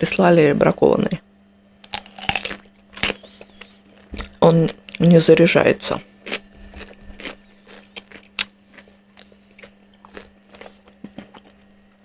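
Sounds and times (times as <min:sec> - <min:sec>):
person chewing crispy food: 0:01.8 - 0:05.0, 0:06.0 - 0:12.0.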